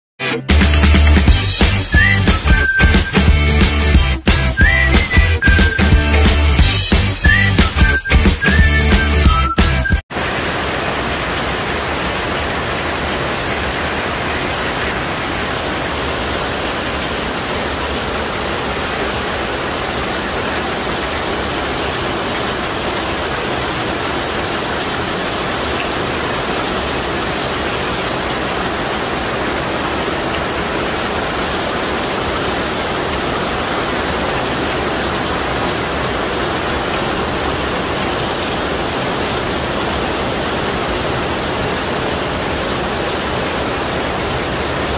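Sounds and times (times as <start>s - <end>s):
heavy rain falling: 10.1s - 44.9s.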